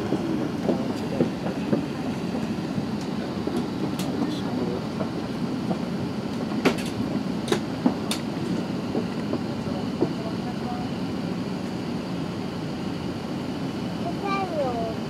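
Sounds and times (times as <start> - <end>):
aircraft cabin low rumble: 0.0 - 15.0.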